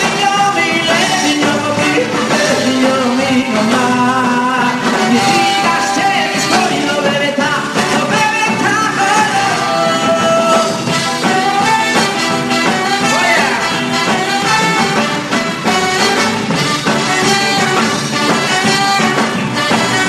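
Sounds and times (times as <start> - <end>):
man singing: 0.0 - 15.2
live band playing: 0.0 - 20.0.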